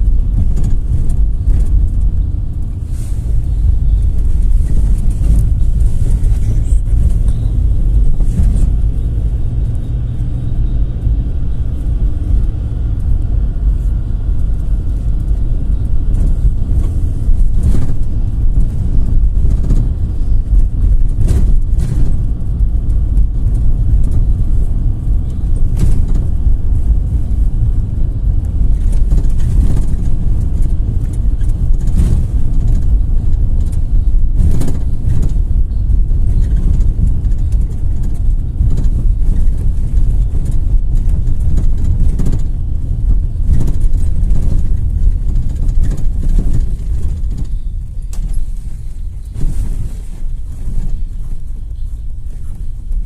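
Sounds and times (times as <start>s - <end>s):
engine and road rumble: 0.0s - 53.0s
short knocks and rattles: 28.4s - 51.4s.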